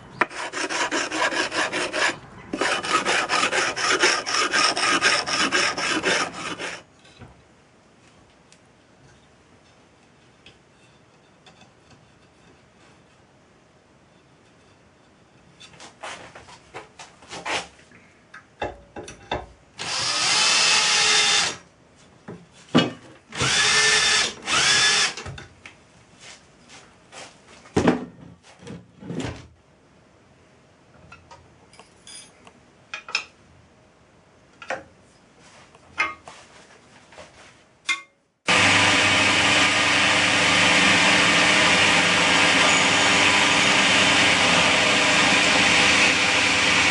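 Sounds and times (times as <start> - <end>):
cordless drill drilling into metal: 19.8 - 21.6, 23.4 - 25.2.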